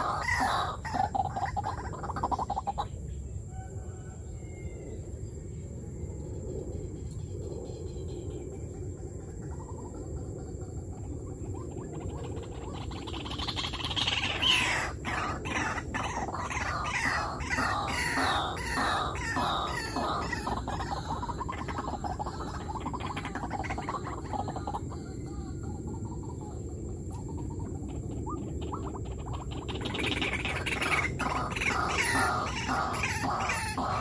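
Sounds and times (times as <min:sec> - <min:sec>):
waterhen calling: 0:00.0 - 0:02.9, 0:11.5 - 0:34.0
low background rumble: 0:00.0 - 0:34.0.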